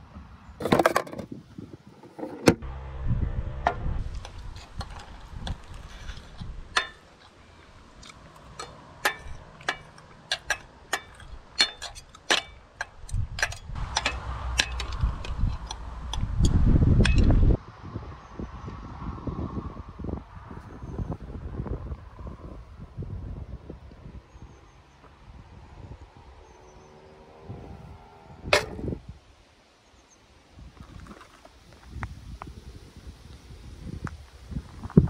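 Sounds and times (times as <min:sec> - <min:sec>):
low rumble: 0:02.6 - 0:06.8, 0:13.1 - 0:23.5.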